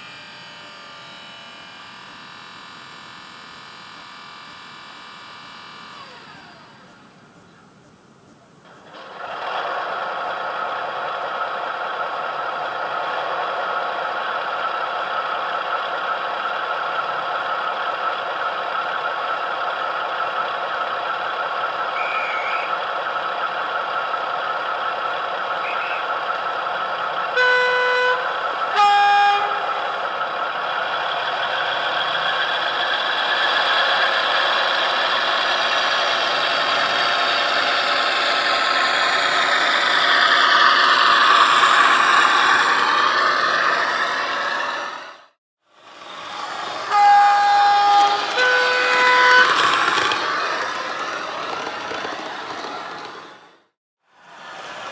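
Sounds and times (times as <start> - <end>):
diesel engine running: 8.7 - 53.7
locomotive horn blasts: 27.3 - 29.8, 46.8 - 49.7.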